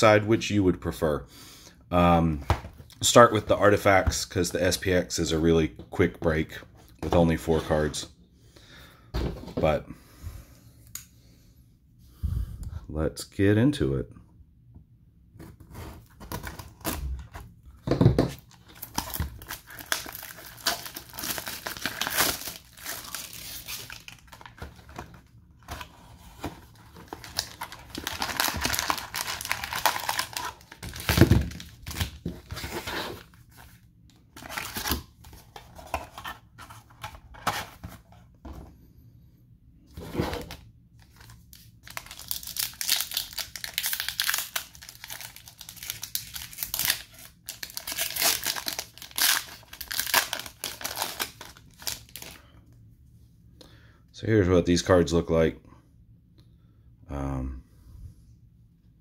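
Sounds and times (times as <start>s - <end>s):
plastic wrap crinkling and tearing: 18.4s - 33.7s, 41.0s - 52.4s
foil packs tearing: 18.7s - 24.9s, 26.9s - 32.2s, 41.8s - 52.4s.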